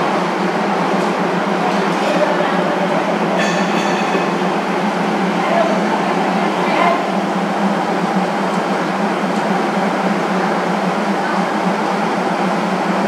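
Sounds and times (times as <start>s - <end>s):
diesel train engine idling: 0.0s - 13.0s.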